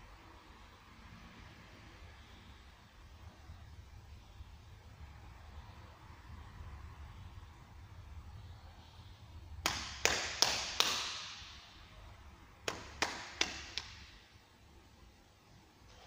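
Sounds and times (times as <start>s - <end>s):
sharp slaps echoing in hall: 9.6s - 14.4s.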